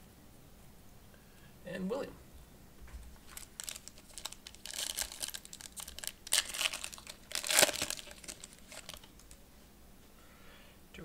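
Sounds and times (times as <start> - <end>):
foil wrapper crinkling: 3.2 - 9.4.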